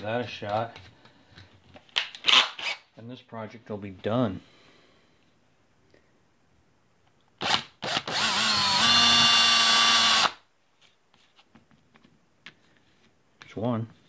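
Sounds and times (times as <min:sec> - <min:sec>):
power drill whining: 0:07.4 - 0:10.4.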